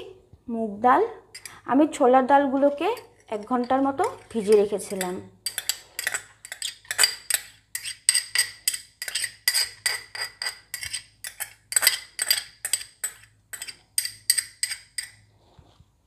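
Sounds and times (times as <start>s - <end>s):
bowl and spoon clinking on metal: 1.4s - 1.6s, 2.8s - 15.2s.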